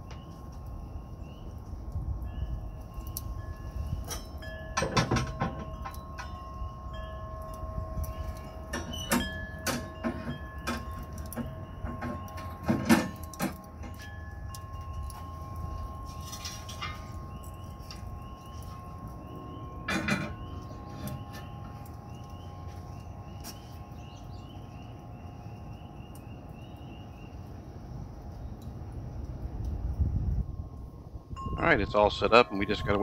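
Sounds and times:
metal stand clanking on ceramic: 4.1 - 6.4, 19.9 - 21.7.

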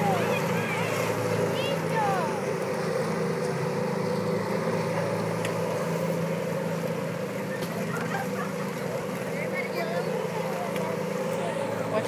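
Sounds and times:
bumper boat motors droning: 0.0 - 12.0.

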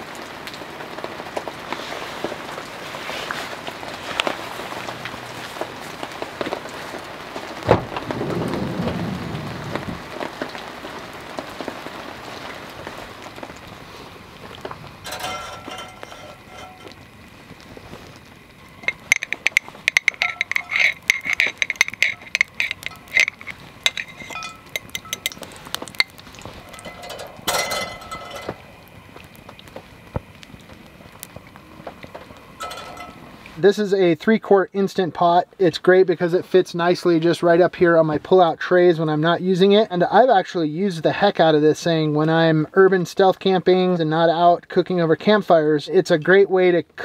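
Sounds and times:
oil sizzling in a skillet: 0.0 - 7.7, 9.4 - 33.7
steady rain falling: 0.0 - 47.0
thump: 7.7 - 8.1.

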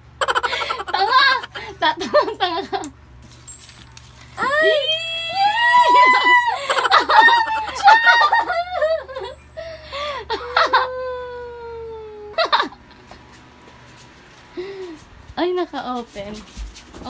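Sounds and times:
young women laughing: 0.2 - 3.0, 4.4 - 13.1
young women squealing: 4.4 - 12.4.

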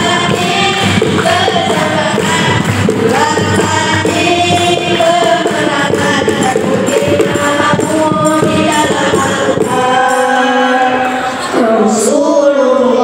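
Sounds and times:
steady percussion beat: 0.0 - 11.0
boys singing in a group: 0.0 - 13.0.

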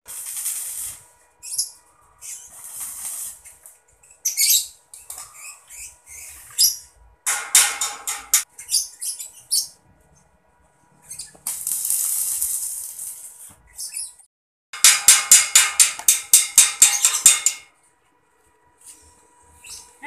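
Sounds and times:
electric arc welding crackle: 0.1 - 1.1, 2.4 - 3.6, 11.4 - 13.4.

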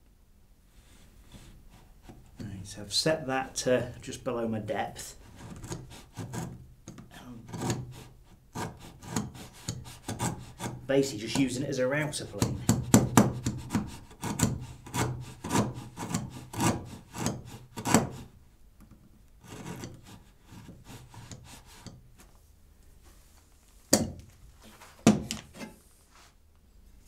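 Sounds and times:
plane blade scraping wood: 5.2 - 6.6, 7.4 - 18.3, 19.4 - 22.0.

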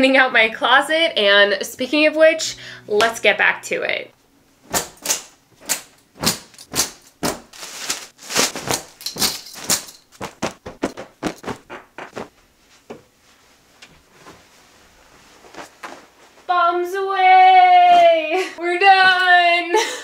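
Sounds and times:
clothes hangers clacking: 4.7 - 11.7
fabric rustling: 6.2 - 17.8.

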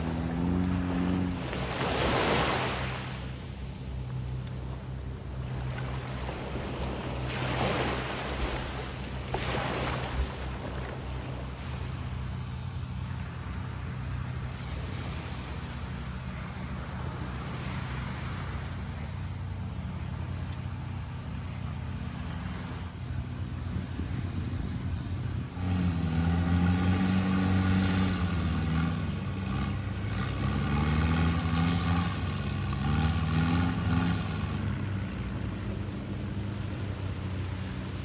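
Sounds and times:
boat engine droning: 0.0 - 38.0
water splashing: 0.6 - 3.5, 5.4 - 11.9.

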